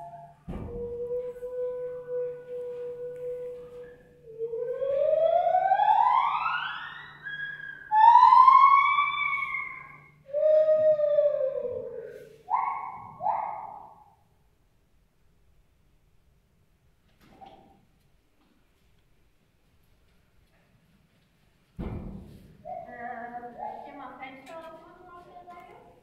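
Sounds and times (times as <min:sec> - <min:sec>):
gibbons singing: 0:01.3 - 0:14.1, 0:22.7 - 0:24.1.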